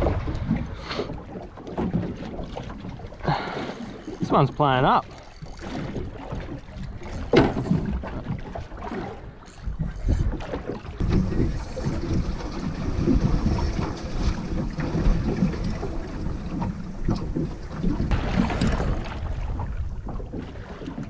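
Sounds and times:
sea washing against hull: 0:00.0 - 0:21.0
wind buffeting microphone: 0:05.4 - 0:21.0.

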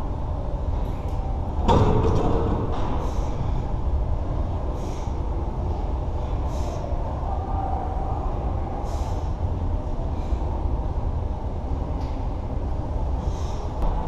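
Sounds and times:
gym ambience rumble: 0:00.0 - 0:14.0
soft hissing puffs of breath: 0:03.0 - 0:03.9, 0:04.6 - 0:07.1, 0:08.7 - 0:10.7, 0:13.1 - 0:13.8.

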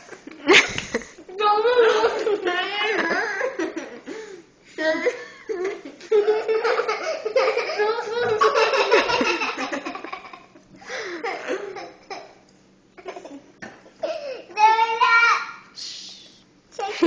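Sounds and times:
girls laughing and giggling: 0:00.0 - 0:12.3.

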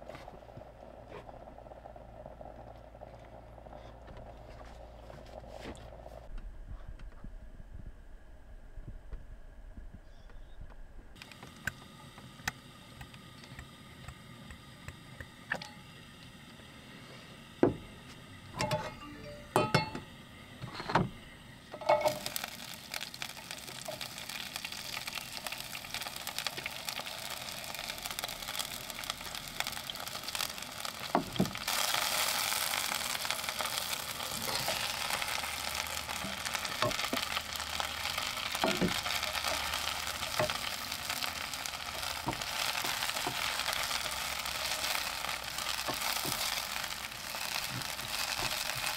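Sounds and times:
vegetables sizzling in oil: 0:11.2 - 0:48.9
utensils clinking on pan: 0:18.6 - 0:20.1, 0:21.8 - 0:22.4.

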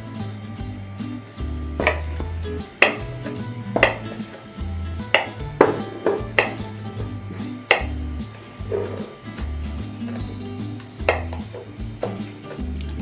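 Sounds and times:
background music: 0:00.0 - 0:13.0
knife knocking on wooden board: 0:01.8 - 0:03.1, 0:03.8 - 0:04.2, 0:05.1 - 0:08.0, 0:11.1 - 0:11.4.

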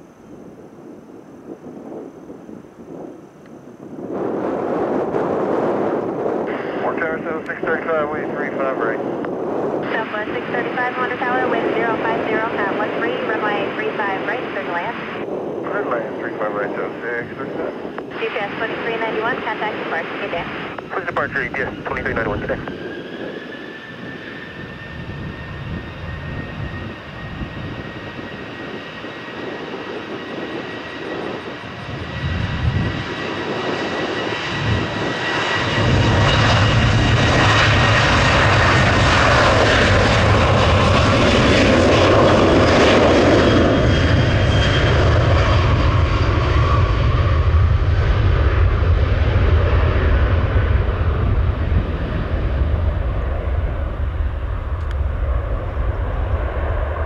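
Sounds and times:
jet engine low rumble: 0:00.0 - 0:57.0
jet engine whine: 0:00.0 - 0:57.0.

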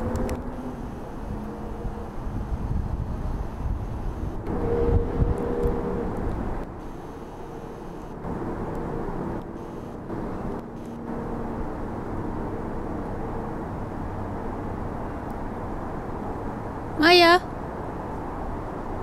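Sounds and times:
faint pitched tones: 0:00.0 - 0:11.5
distant engine drone: 0:00.0 - 0:19.0.

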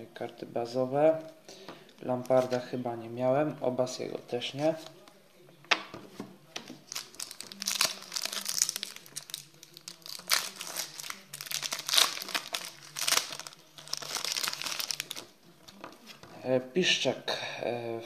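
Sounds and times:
foil sachet tearing: 0:06.8 - 0:15.3
foil wrapper crinkling: 0:06.8 - 0:15.3.

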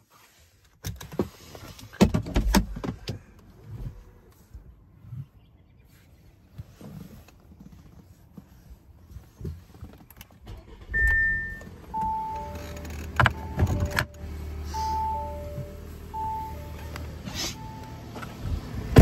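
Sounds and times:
car engine starting and idling: 0:10.1 - 0:19.0
two-note warning chimes: 0:13.3 - 0:18.2.

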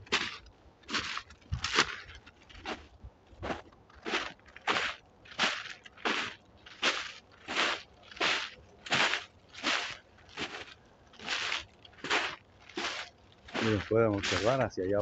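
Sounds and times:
footsteps crunching through crusted snow: 0:00.0 - 0:15.0.

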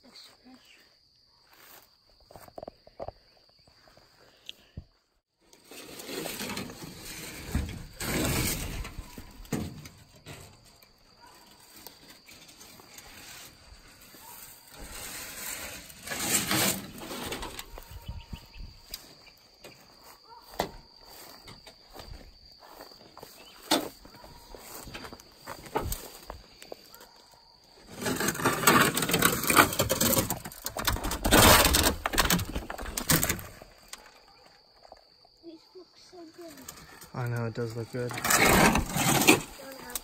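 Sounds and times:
high insect whine: 0:05.7 - 0:40.0
metal sheets rattling and scraping: 0:05.8 - 0:10.6, 0:14.7 - 0:17.8, 0:28.0 - 0:33.4, 0:38.1 - 0:39.6
footsteps through brush: 0:17.0 - 0:27.2.

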